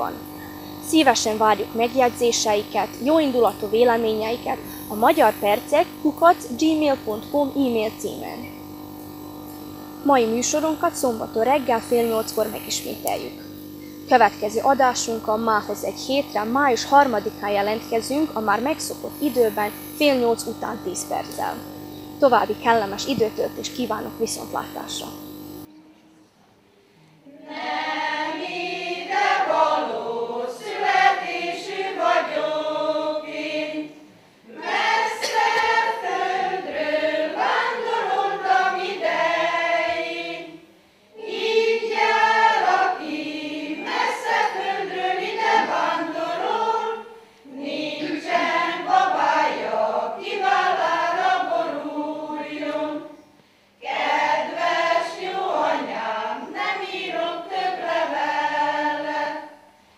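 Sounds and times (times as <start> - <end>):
women's choir singing unaccompanied: 0.0 - 0.2, 27.2 - 59.7.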